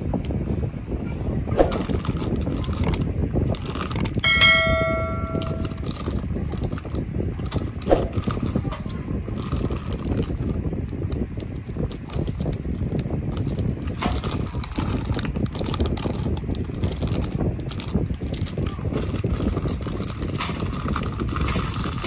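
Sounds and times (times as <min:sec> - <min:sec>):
plastic bags crinkling: 0:01.7 - 0:22.0
small plastic pieces clicking: 0:09.4 - 0:22.0.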